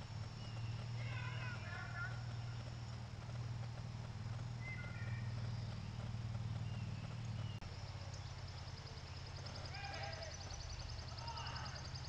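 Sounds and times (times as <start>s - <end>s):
fast high ticking: 0.0s - 12.0s
low recording hum: 0.0s - 12.0s.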